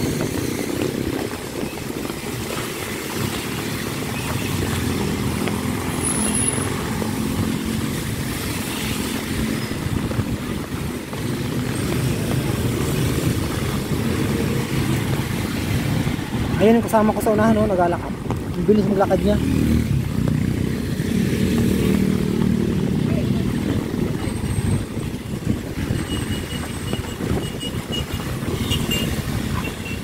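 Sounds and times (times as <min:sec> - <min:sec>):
heavy rain: 0:00.0 - 0:30.0
vehicles passing on wet road: 0:00.0 - 0:30.0.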